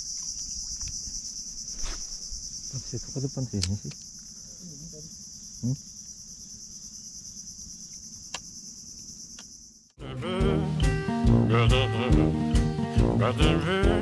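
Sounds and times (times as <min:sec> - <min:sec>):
insect chorus drone: 0:00.0 - 0:11.2
guitar music: 0:10.0 - 0:14.0.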